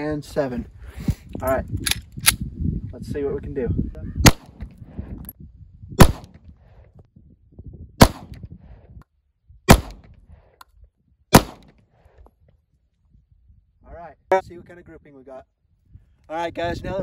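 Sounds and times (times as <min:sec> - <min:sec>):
pistol shots: 0:04.2 - 0:04.6, 0:06.0 - 0:06.4, 0:08.0 - 0:08.4, 0:09.7 - 0:10.1, 0:11.3 - 0:11.8.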